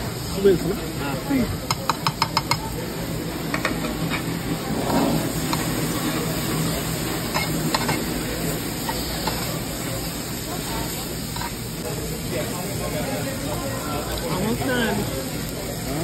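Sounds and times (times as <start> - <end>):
chicken sizzling on grill plate: 0.0 - 16.0
metal tongs clicking and scraping: 7.3 - 8.1.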